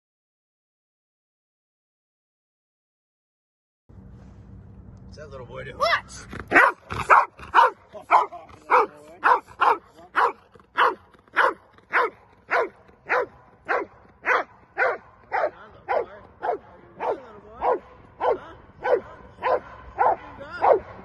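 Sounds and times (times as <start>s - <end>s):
large dog barking: 6.5s - 21.0s.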